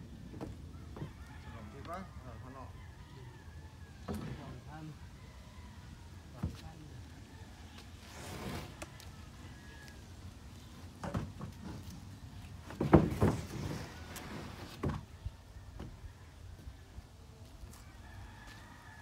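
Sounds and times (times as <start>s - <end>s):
wooden knocks and thuds: 4.1s - 4.5s, 11.0s - 11.9s, 12.6s - 13.9s, 14.6s - 15.1s.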